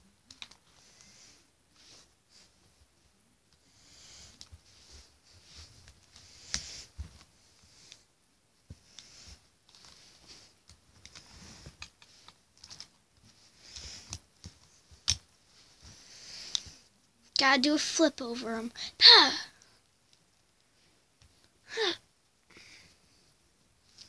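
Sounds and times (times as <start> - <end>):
plastic dolls rustling on carpet: 0.3 - 17.0.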